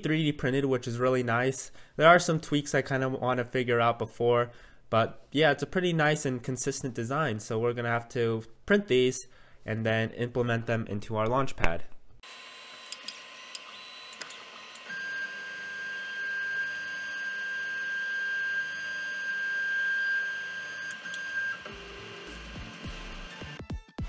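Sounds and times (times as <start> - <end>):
printer motors whining: 12.3 - 23.6.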